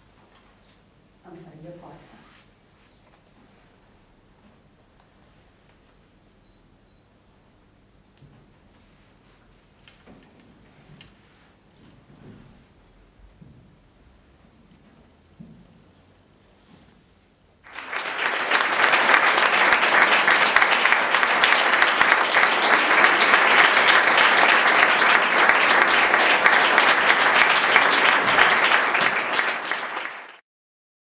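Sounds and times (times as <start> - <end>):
audience applauding: 17.7 - 30.4.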